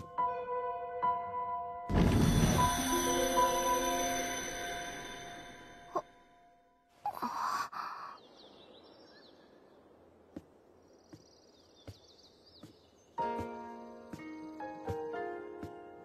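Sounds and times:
breathy sigh: 7.0s - 8.3s
faint bird chirps and trill: 7.0s - 15.1s.

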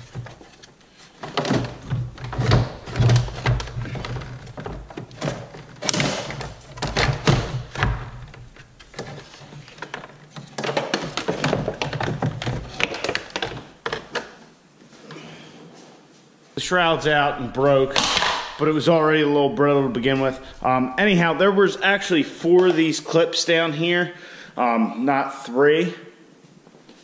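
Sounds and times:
plastic knocking and clunking: 0.0s - 14.4s
plastic scraping against metal: 0.0s - 14.4s.

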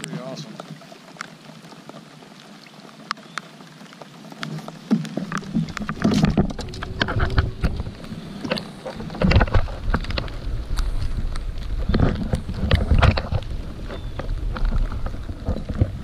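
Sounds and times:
rain tapping on a kayak: 0.0s - 16.0s
low uneven rumble: 5.2s - 16.0s.

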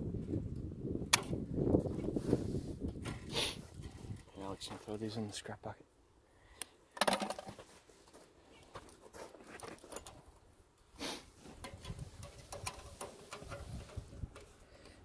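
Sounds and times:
wire twisting clicks and scrapes: 8.7s - 10.5s, 11.4s - 15.0s.

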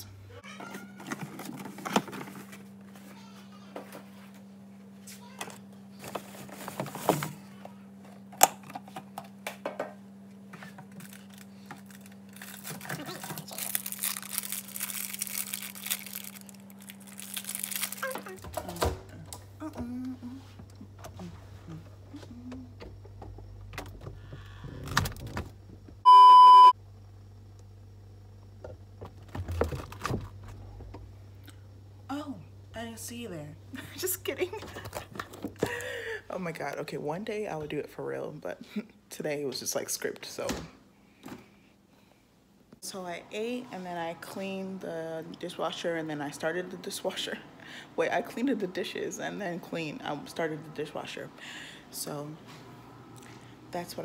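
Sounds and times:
steady low hum: 0.0s - 39.7s
high-pitched test-tone beep: 26.1s - 26.8s.

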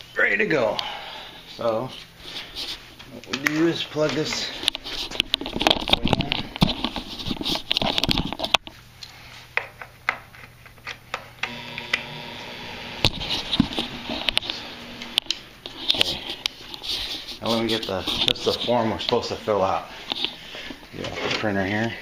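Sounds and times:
faint steady hum: 7.6s - 17.6s
tubing rubbing and rustling: 15.6s - 22.0s.

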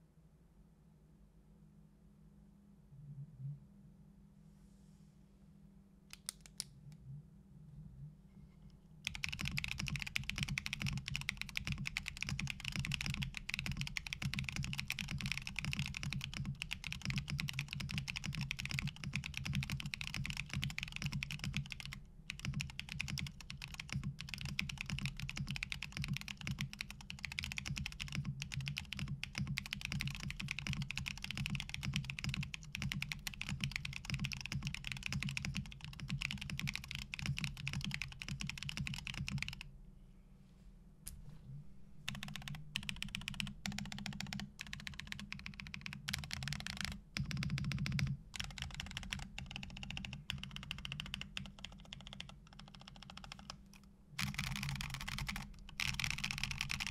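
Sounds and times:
fast typing on mechanical keyboard: 9.0s - 39.6s, 42.1s - 56.9s.

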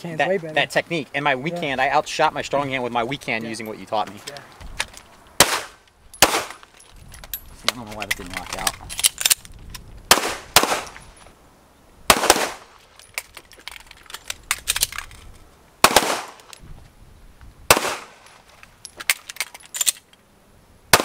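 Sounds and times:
pistol shots: 5.4s - 6.6s, 10.1s - 11.0s, 12.1s - 12.7s, 15.8s - 16.5s, 17.7s - 18.2s.

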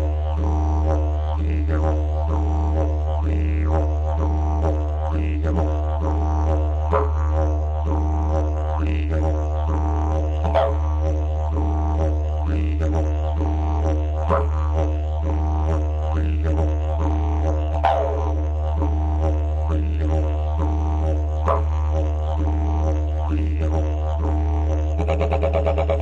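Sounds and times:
didgeridoo drone: 0.0s - 26.0s.

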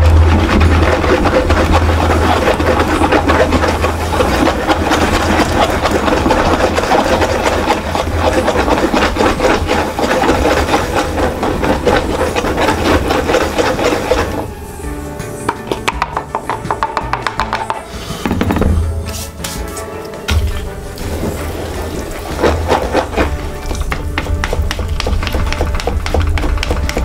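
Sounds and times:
whisk scraping metal bowl: 0.0s - 15.2s, 21.0s - 27.0s.

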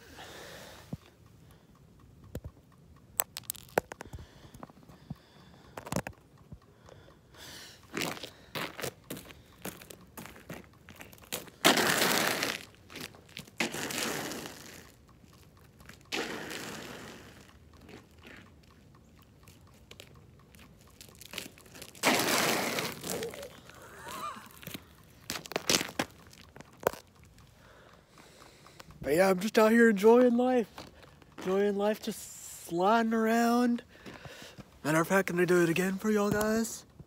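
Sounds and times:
crunching footsteps: 3.2s - 6.2s, 7.9s - 32.1s, 34.0s - 36.8s
shoes scraping on ice: 8.0s - 18.4s, 21.0s - 27.1s.

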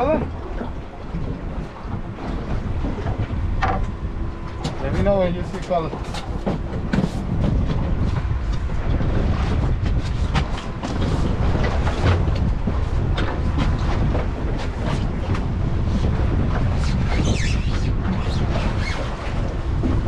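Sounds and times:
boat low rumble: 0.0s - 20.0s
knocks and clicks: 2.9s - 4.8s.

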